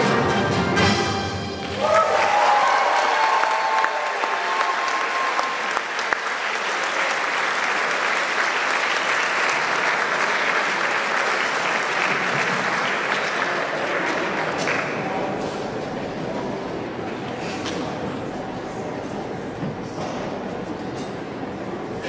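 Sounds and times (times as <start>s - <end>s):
audience applauding: 1.6s - 15.3s.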